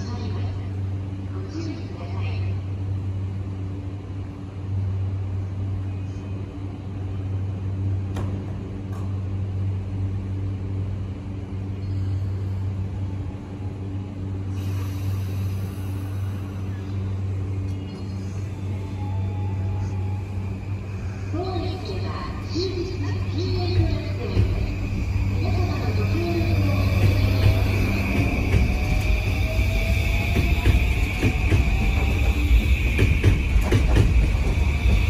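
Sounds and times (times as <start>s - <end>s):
electric train humming: 0.0s - 35.0s
train pulling away: 11.5s - 35.0s.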